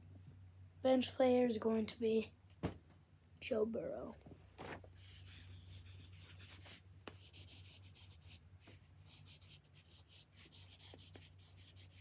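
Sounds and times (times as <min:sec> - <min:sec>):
pencil scratching on paper: 0:05.0 - 0:08.4, 0:09.1 - 0:12.0.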